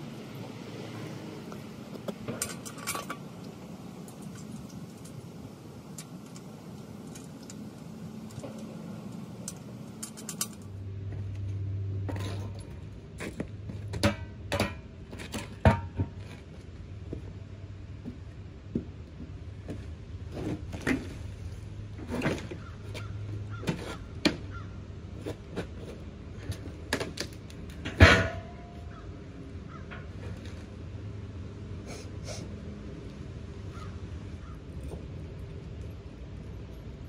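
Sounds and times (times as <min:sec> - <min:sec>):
metal parts clinking and knocking: 0:09.5 - 0:10.7
sharp metallic clanks: 0:27.8 - 0:28.9.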